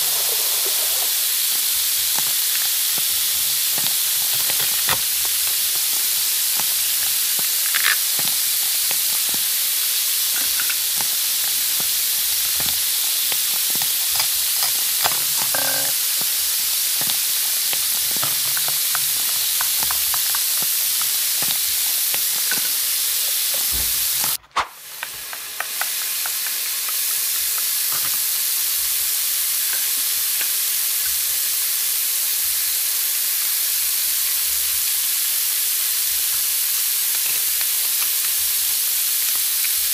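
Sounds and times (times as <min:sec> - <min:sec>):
steady hiss: 0:00.0 - 0:39.9
plastic toy pieces clicking on table: 0:06.6 - 0:09.4.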